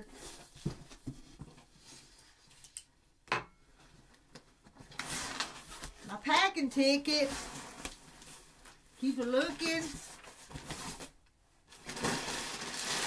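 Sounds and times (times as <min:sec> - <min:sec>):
paper and cardboard rustling: 0:04.8 - 0:13.0.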